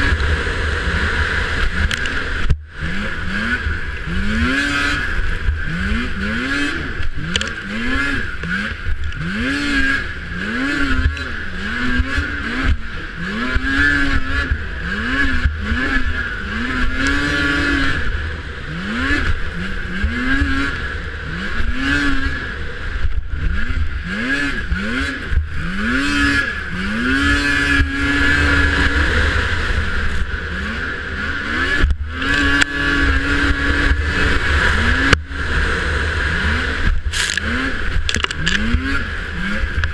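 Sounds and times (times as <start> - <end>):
snowmobile engine revving: 0.0 - 39.9.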